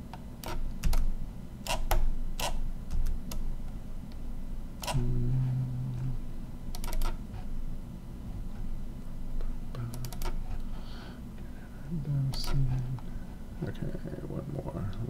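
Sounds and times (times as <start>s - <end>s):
low steady hum: 0.0s - 15.0s
brief low hum: 4.9s - 6.3s.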